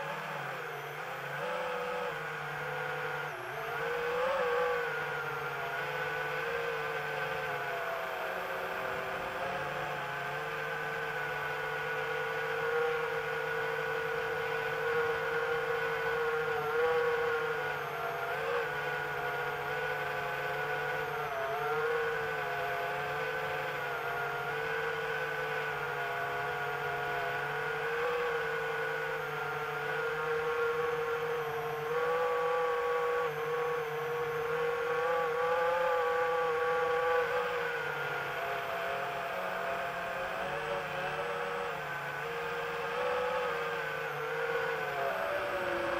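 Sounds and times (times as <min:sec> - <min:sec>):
drone propellers whirring: 0:00.0 - 0:45.9.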